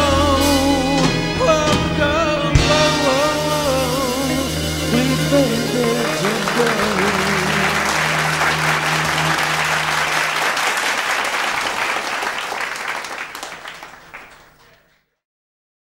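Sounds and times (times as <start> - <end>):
band holding low note: 0.0 - 10.5
audience applauding: 5.1 - 15.1.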